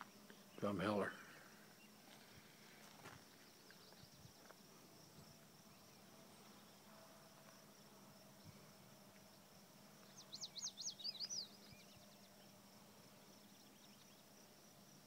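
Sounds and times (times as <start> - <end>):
faint chirps: 0.0 - 6.9, 7.8 - 14.3
distant insects droning: 0.0 - 15.0.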